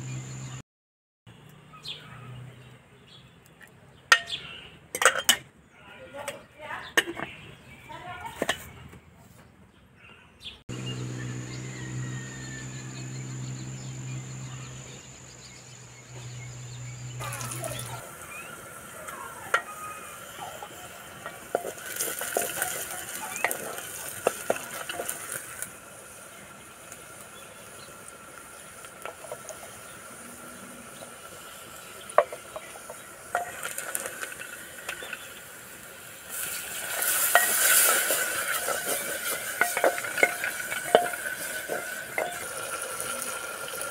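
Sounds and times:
water poured into hot pot: 17.2s - 25.8s, 36.2s - 43.9s
onions sizzling in oil: 17.2s - 43.9s.

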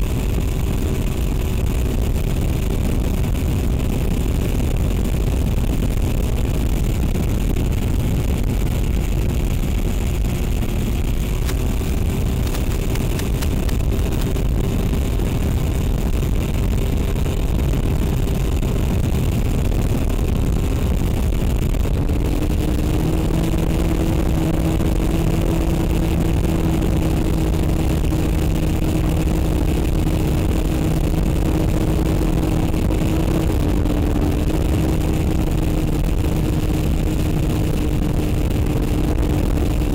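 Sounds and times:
wind rush: 0.0s - 39.9s.

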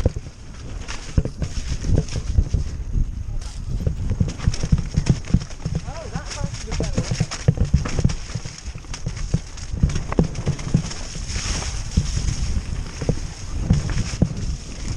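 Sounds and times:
dirt bike engine and wind rumble: 0.0s - 14.9s
knocks and thuds from bumps: 3.8s - 14.5s.

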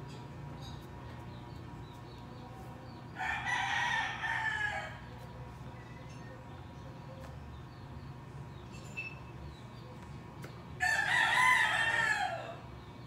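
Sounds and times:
low steady hum: 0.0s - 13.0s
rooster crowing: 3.2s - 5.1s, 10.8s - 12.7s.

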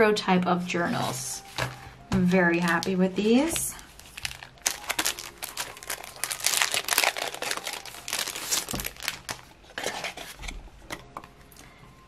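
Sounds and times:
plastic packaging crinkling: 2.6s - 10.4s.

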